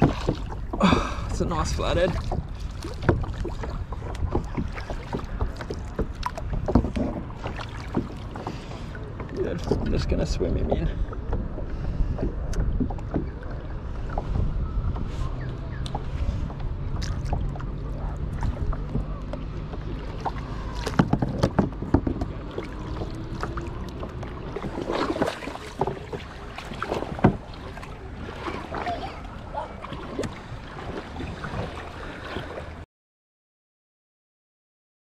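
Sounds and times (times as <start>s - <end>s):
water sloshing and splashing: 0.0s - 32.8s
wind on microphone: 9.0s - 19.2s, 23.1s - 32.0s.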